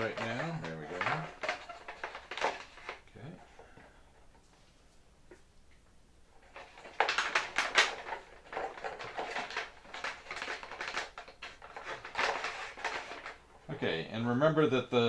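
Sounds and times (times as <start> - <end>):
plastic film crinkling and rustling: 0.0 - 3.3, 6.4 - 14.0.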